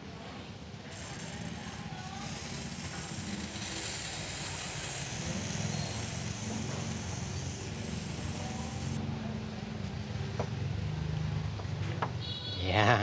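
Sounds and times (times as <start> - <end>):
aerosol spray can hissing: 0.9 - 9.0.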